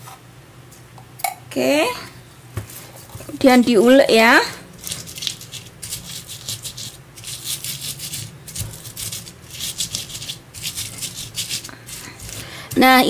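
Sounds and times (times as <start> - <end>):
stone pestle grinding in mortar: 4.8 - 13.0.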